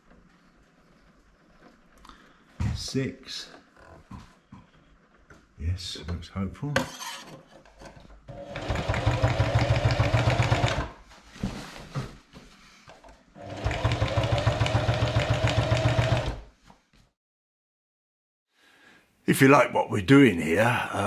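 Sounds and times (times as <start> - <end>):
sewing machine stitching: 8.3 - 11.0, 13.4 - 16.5.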